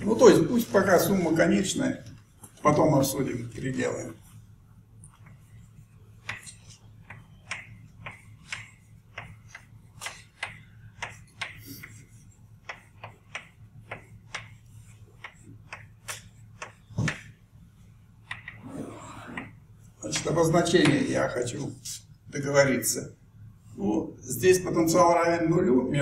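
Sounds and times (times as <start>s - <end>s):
low steady hum: 0.0s - 26.0s
chalk tapping on a blackboard: 5.1s - 17.4s, 18.2s - 18.6s.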